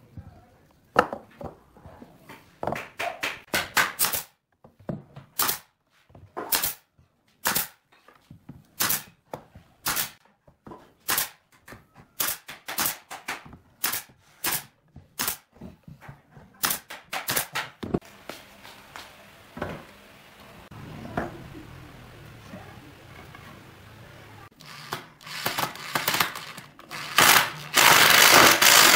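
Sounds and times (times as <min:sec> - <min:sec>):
nail gun firing: 0:03.5 - 0:04.3, 0:05.4 - 0:05.7, 0:06.4 - 0:06.8, 0:07.4 - 0:07.8, 0:08.8 - 0:09.1, 0:09.8 - 0:10.2, 0:11.0 - 0:11.4, 0:12.2 - 0:15.5, 0:16.6 - 0:17.8, 0:24.9 - 0:28.9.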